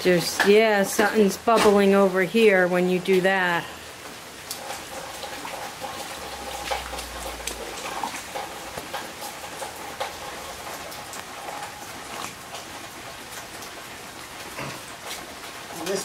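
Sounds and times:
rain falling on concrete: 0.0s - 16.0s
drops splashing into puddle: 4.4s - 13.8s.

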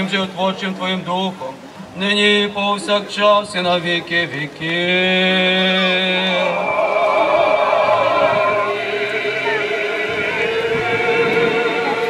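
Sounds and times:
mixed choir singing: 5.8s - 12.0s.

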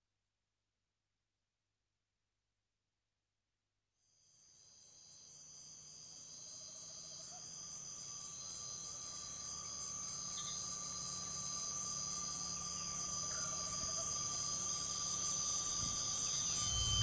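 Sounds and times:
crickets trilling: 4.6s - 17.0s
low steady hum: 9.0s - 17.0s.

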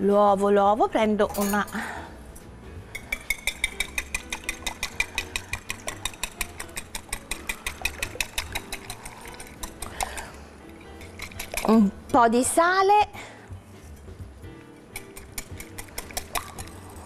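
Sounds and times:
wire whisk beating eggs in bowl: 3.0s - 12.2s, 14.9s - 17.0s.

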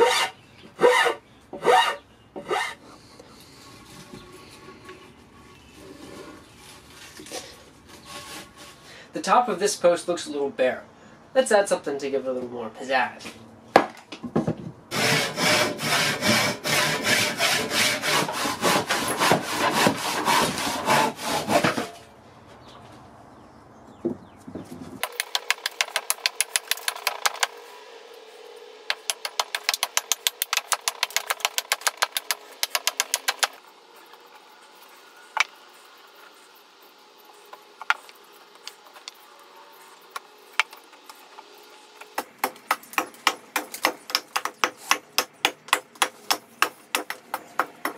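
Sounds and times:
hand saw cutting wood: 0.0s - 4.0s, 5.9s - 8.8s, 14.9s - 22.1s, 25.0s - 27.6s, 28.9s - 33.6s, 42.2s - 47.9s.

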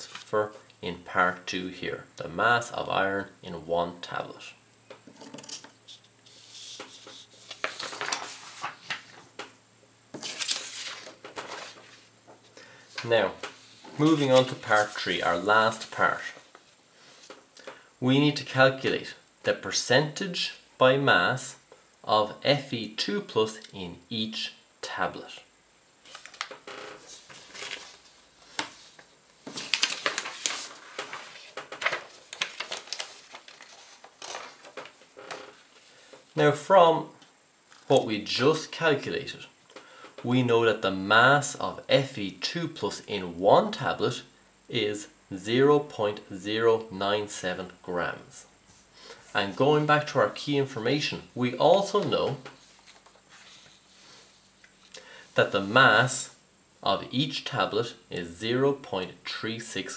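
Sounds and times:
paper sheets rustling: 0.0s - 0.6s, 5.1s - 9.4s, 10.2s - 12.1s, 12.9s - 17.4s, 26.0s - 36.2s, 51.7s - 54.6s.

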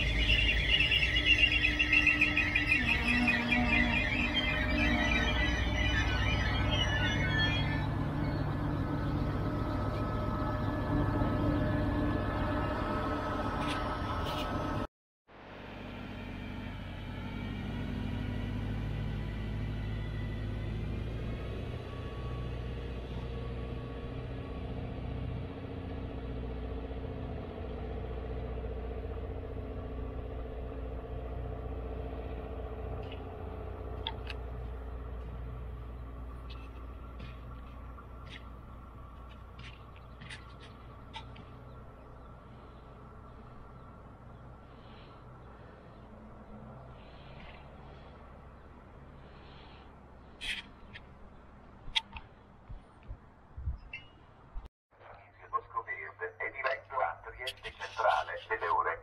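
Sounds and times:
high squeal: 0.0s - 14.8s
train equipment humming: 0.0s - 54.7s.

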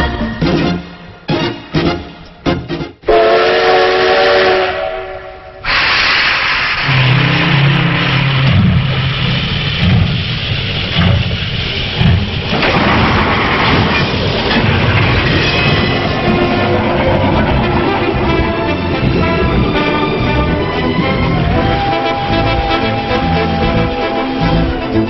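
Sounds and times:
steam locomotive whistle: 3.1s - 8.6s, 16.3s - 25.0s
loud hiss of escaping steam: 5.6s - 12.6s
low tones: 6.8s - 25.0s.

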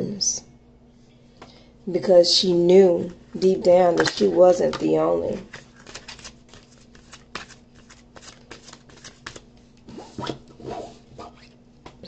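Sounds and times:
cards being shuffled: 3.9s - 10.0s.

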